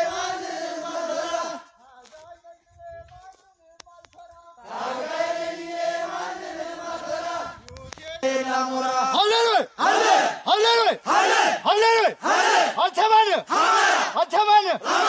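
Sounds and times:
men chanting: 0.0 - 1.8, 4.2 - 15.0
group shouts: 8.3 - 15.0.

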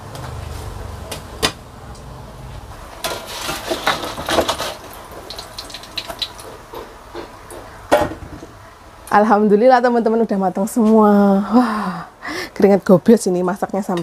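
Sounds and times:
oil crackling: 3.0 - 6.8.

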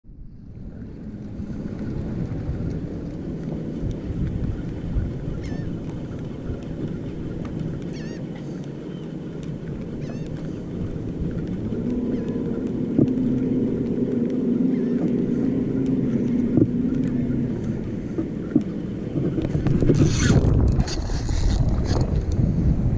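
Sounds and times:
steady low hum: 0.1 - 22.9
water lapping at boat: 0.1 - 22.9
wind buffeting microphone: 0.1 - 22.9
faint bird calls: 5.3 - 5.8, 7.8 - 9.2, 9.9 - 10.7, 12.0 - 12.6, 14.6 - 17.8.

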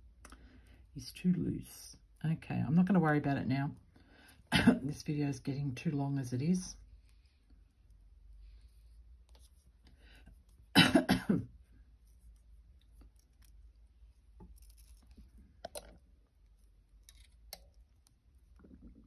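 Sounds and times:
person coughing: 4.5 - 4.9, 10.8 - 11.5
wire and beads clicking: 12.0 - 18.6.

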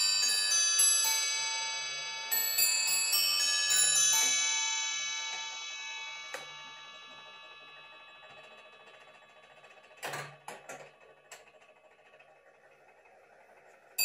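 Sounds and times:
clock chime ringing: 0.0 - 9.8.

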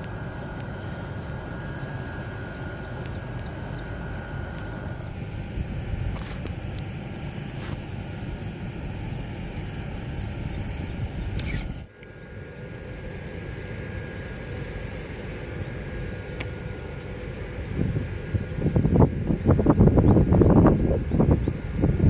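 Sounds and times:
wind rumble on microphone: 2.5 - 11.9, 16.4 - 22.0.

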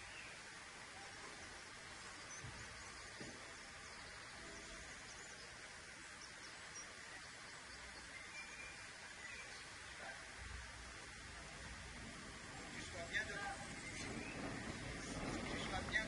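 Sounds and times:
faint background hiss: 0.0 - 16.0.

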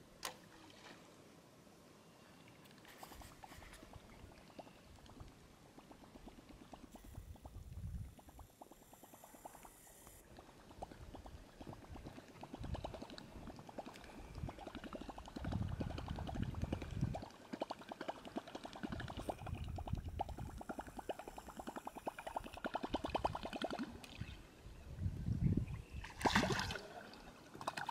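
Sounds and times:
wind rumble on microphone: 7.0 - 8.4, 14.3 - 17.3, 18.8 - 20.7, 22.9 - 23.5, 24.2 - 26.6.

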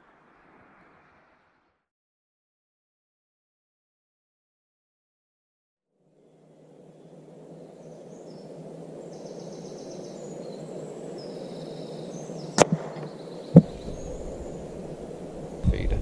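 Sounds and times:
birds chirping: 6.2 - 16.0
pellet strike: 12.6 - 13.8
air rifle shot crack: 12.6 - 14.0
dull thud: 12.6 - 14.3.

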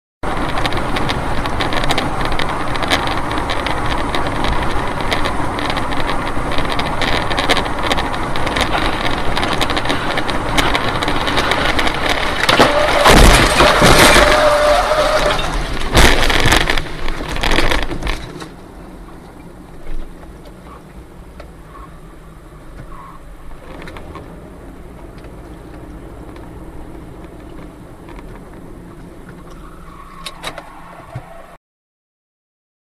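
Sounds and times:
road and engine noise in car: 0.2 - 31.6
wreckage impacts: 0.6 - 18.6
loud crash: 10.6 - 17.6.

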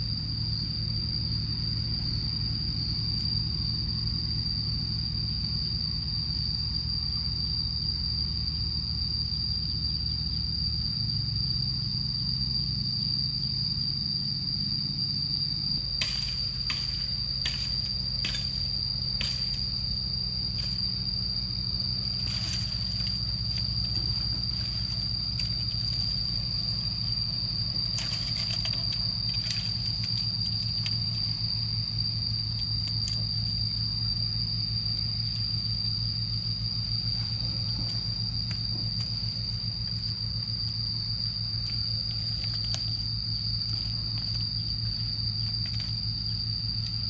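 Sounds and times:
insects droning: 0.0 - 47.0
low background hum: 0.0 - 47.0
dry bamboo crackling: 15.8 - 36.0, 36.7 - 47.0.

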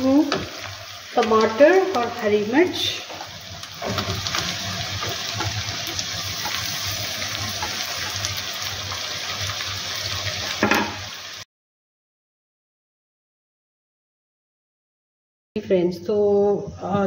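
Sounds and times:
vegetables sizzling in hot oil: 0.0 - 11.5.

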